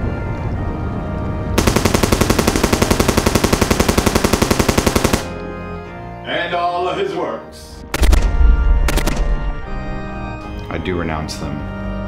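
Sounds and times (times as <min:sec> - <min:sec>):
music with held notes: 0:00.0 - 0:01.6, 0:05.0 - 0:12.0
machine-gun fire: 0:01.6 - 0:05.4, 0:07.9 - 0:09.3.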